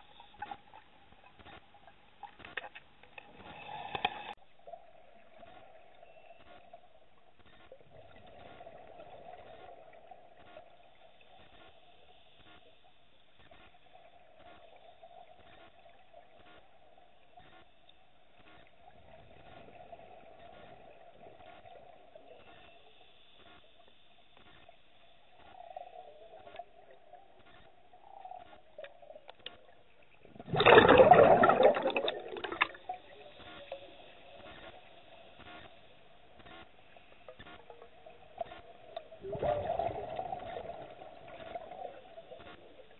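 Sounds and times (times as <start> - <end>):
faint underwater hum: 0.0 - 42.9
scuba regulator exhaust bubbles: 25.3 - 42.9
light ticks: 27.4 - 29.8.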